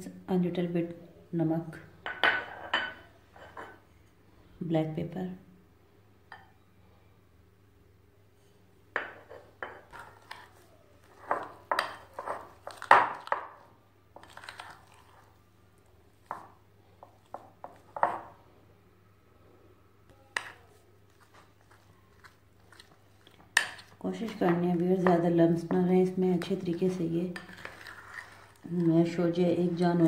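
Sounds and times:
fork scraping a ceramic plate: 27.4s - 28.9s.

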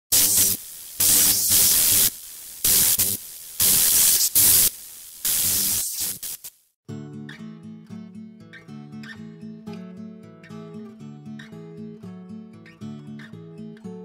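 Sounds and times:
hissing static bursts: 0.1s - 6.8s.

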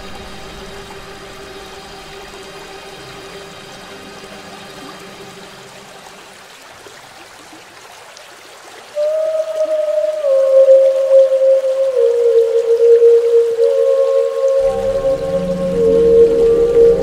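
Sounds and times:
faint drone tones: 0.0s - 6.6s, 9.0s - 17.0s
loud held note: 14.6s - 17.0s.

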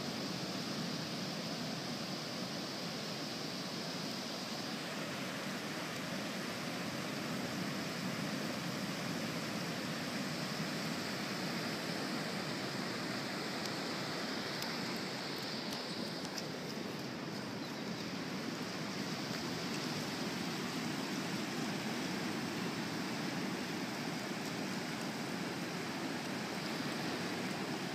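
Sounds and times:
ocean surf washing: 0.0s - 27.9s.

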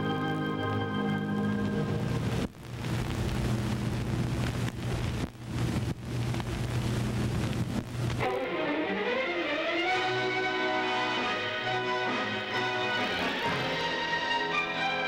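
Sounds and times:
organ music: 0.0s - 2.4s, 8.2s - 15.0s
steady noisy hiss: 0.0s - 15.0s.

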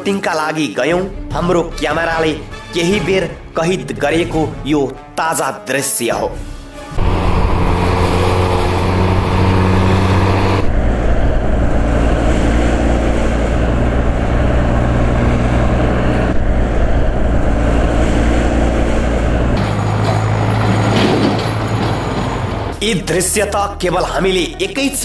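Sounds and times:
heavy trucks and buses droning: 6.4s - 25.0s.

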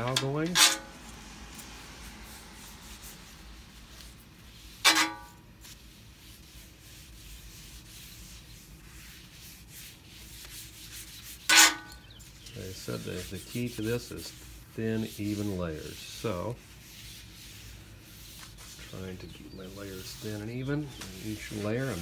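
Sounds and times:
paper towel scrubbing hot griddle: 0.0s - 22.0s.

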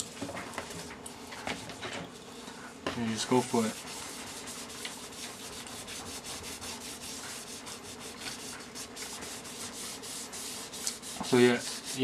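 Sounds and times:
glove rubbing leather shoe: 3.5s - 12.0s.

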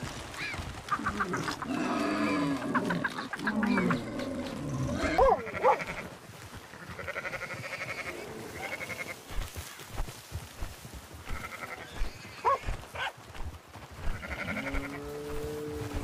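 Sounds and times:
animal bleating: 1.0s - 6.1s, 6.7s - 9.4s, 11.2s - 12.8s, 14.0s - 16.0s.

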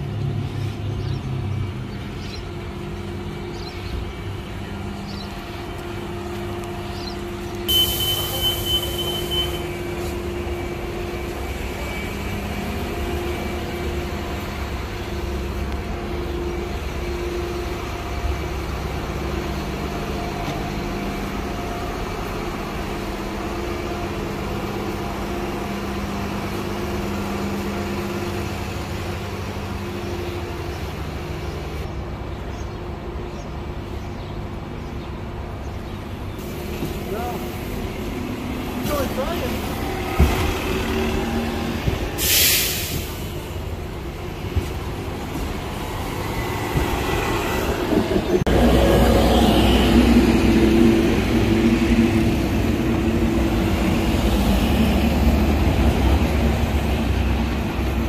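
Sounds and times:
electric bus humming: 0.0s - 58.0s
air hissing: 42.0s - 43.5s.

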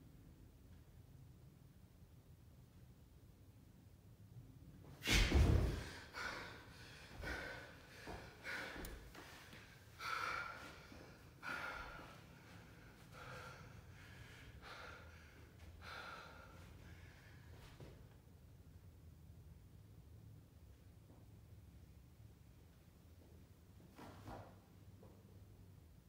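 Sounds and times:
man breathing hard and gasping: 5.0s - 17.8s.

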